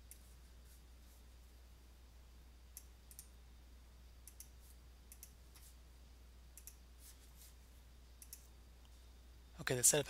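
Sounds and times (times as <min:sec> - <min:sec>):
faint mouse clicks: 0:00.0 - 0:00.3, 0:02.7 - 0:03.4, 0:04.2 - 0:05.7, 0:06.5 - 0:06.8, 0:08.2 - 0:09.0
low steady hum: 0:00.0 - 0:10.0.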